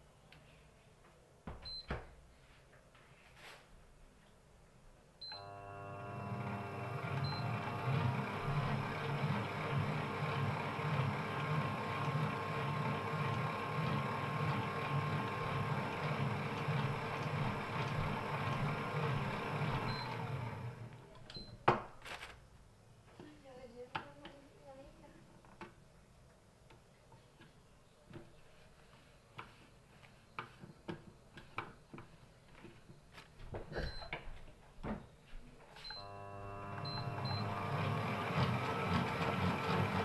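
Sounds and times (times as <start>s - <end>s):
stand mixer motor running: 5.4s - 20.9s, 36.0s - 40.0s.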